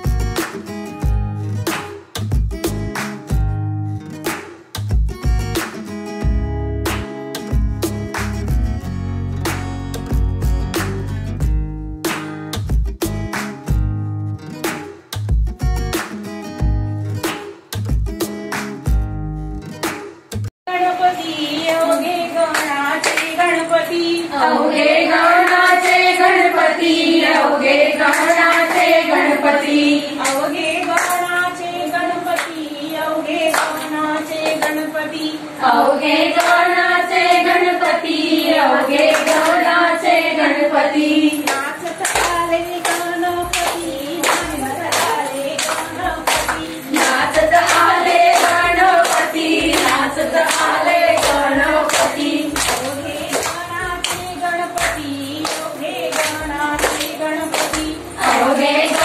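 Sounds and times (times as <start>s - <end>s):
hand claps: 0.0s - 3.5s, 4.1s - 8.7s, 9.5s - 10.0s, 10.7s - 11.2s, 12.0s - 13.9s, 14.6s - 19.1s, 19.7s - 20.5s, 21.6s - 23.5s, 28.0s - 29.4s, 30.2s - 31.5s, 32.3s - 32.6s, 33.4s - 34.9s, 36.3s - 38.0s, 38.9s - 39.7s, 41.4s - 59.0s
women singing in unison: 20.7s - 59.0s.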